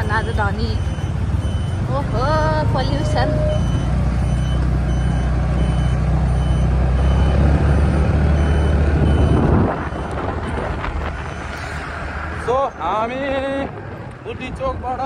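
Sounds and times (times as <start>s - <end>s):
faint high beep: 0.0s - 9.4s
highway traffic: 0.0s - 15.0s
motorcycle engine rumble: 0.0s - 15.0s.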